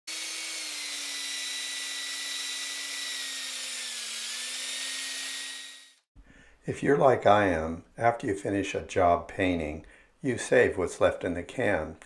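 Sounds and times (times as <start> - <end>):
power drill whining: 0.1 - 6.1.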